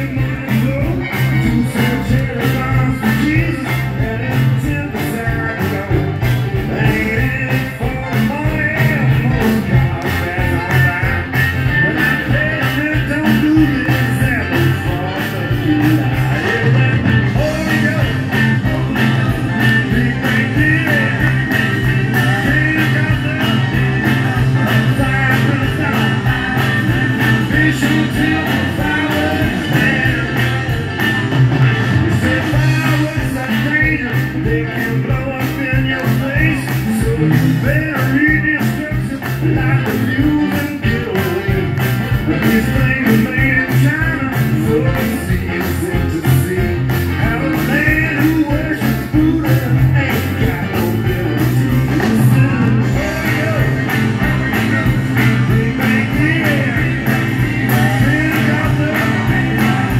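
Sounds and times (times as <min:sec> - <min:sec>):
electric guitars: 0:00.0 - 0:59.9
live rock band playing: 0:00.0 - 0:59.9
man singing: 0:00.0 - 0:59.9.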